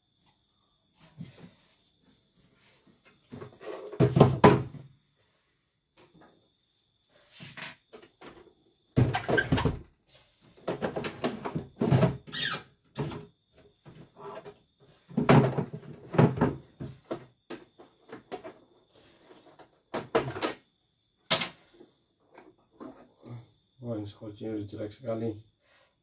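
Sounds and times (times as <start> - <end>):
high-pitched squeak: 12.3 - 12.6.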